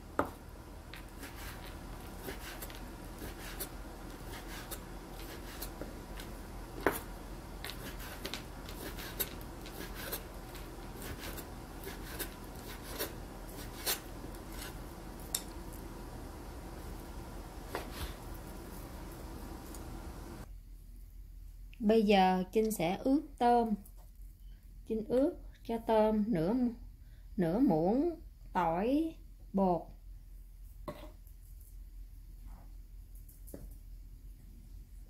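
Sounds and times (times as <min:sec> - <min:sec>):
knife cutting meat on board: 0:01.0 - 0:14.8.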